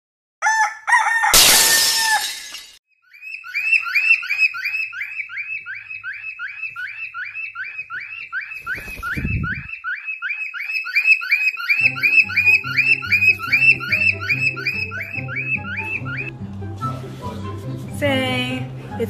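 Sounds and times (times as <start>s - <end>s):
cockatiel chirping rapidly: 3.1s - 16.3s
parakeet squawking: 3.1s - 16.3s.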